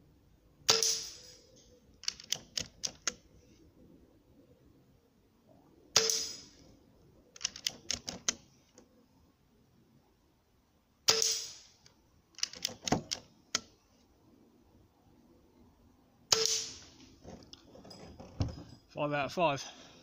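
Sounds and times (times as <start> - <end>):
air rifle shot: 0.7 - 1.2, 6.0 - 6.5
metallic lever clicks: 1.5 - 3.2, 7.4 - 8.4, 12.4 - 13.7.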